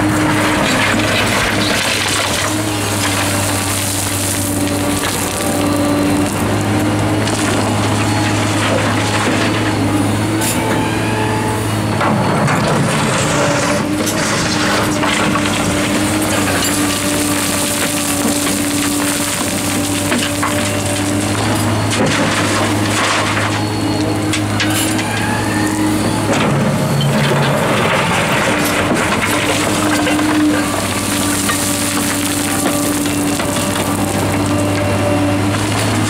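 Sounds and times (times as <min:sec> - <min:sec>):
gravel crunching: 0:00.0 - 0:10.1, 0:12.6 - 0:36.0
diesel engine running: 0:00.0 - 0:36.0
stones clattering into truck: 0:13.9 - 0:23.6, 0:26.2 - 0:34.9.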